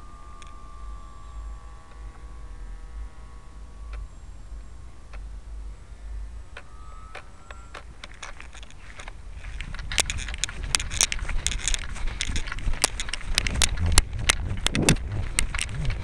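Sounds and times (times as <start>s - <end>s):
electric motor and propeller whine: 0.0s - 16.0s
wind rumble on microphone: 0.0s - 16.0s
sharp clicks: 3.7s - 5.4s, 6.5s - 16.0s.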